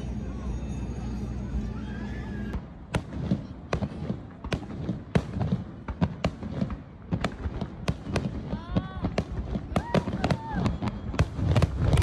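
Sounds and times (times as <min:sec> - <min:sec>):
low rumble: 0:00.0 - 0:04.4
fireworks bangs: 0:02.4 - 0:12.0.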